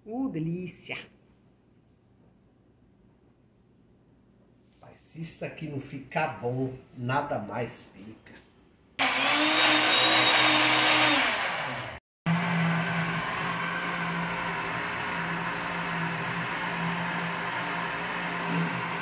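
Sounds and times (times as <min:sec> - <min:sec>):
blender motor running: 0:09.0 - 0:19.0.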